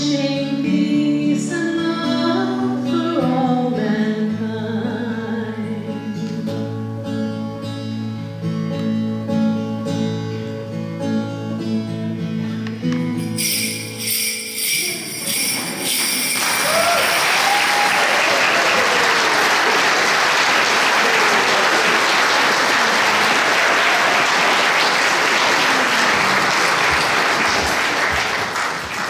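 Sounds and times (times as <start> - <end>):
ringing musical notes: 13.1 - 17.4
people whooping: 14.8 - 28.3
audience applause: 15.3 - 29.0.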